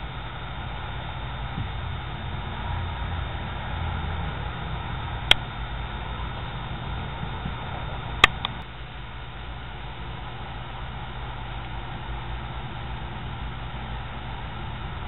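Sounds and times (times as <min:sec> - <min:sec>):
low hum and hiss: 0:00.0 - 0:15.0
sharp clicks: 0:08.2 - 0:08.6.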